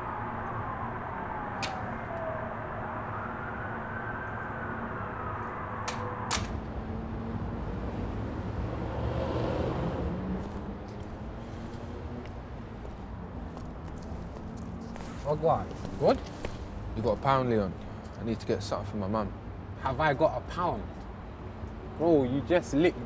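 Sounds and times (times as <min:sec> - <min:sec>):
emergency siren wailing: 0:00.0 - 0:08.0
urban hum: 0:00.0 - 0:23.0.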